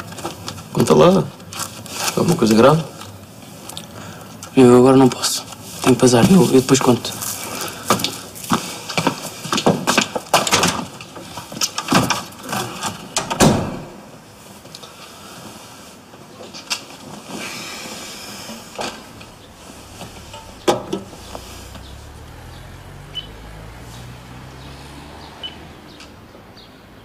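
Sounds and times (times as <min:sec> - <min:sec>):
door shutting: 0:13.2 - 0:14.0.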